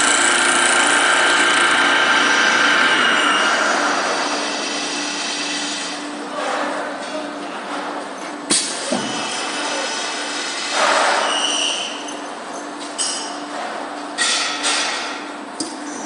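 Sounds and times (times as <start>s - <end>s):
wood lathe cutting: 0.0s - 5.8s.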